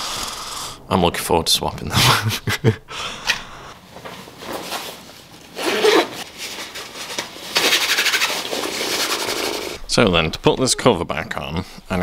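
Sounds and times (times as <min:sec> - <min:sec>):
fabric rustling: 0:03.8 - 0:09.8
jacket zip being pulled: 0:05.6 - 0:06.2.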